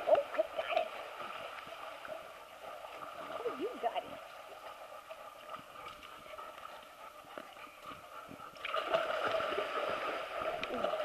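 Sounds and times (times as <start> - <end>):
dog splashing through water: 8.6 - 11.0.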